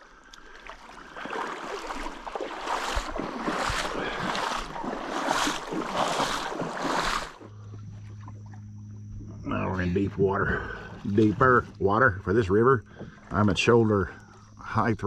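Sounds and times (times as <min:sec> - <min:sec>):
water splashing around wading legs: 0:00.0 - 0:09.4.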